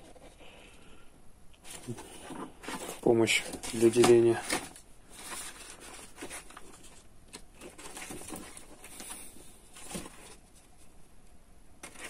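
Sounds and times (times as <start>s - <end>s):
paper pages rustling: 1.6s - 10.9s, 11.8s - 12.0s.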